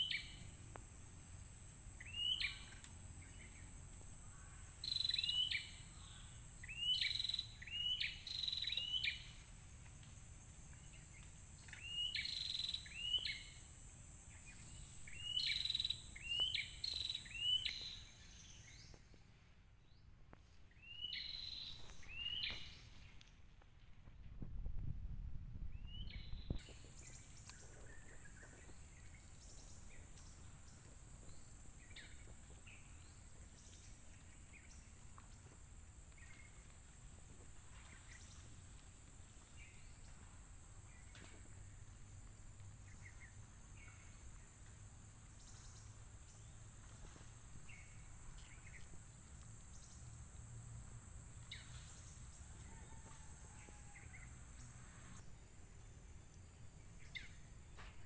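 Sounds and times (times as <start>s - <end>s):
bird chirps: 0.0s - 0.6s, 2.0s - 9.4s, 10.7s - 13.7s, 14.3s - 19.2s, 20.7s - 23.2s.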